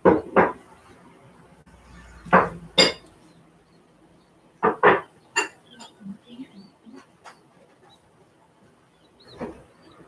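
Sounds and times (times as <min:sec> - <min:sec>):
sharp metallic clanks: 0:02.2 - 0:03.1, 0:04.7 - 0:06.0.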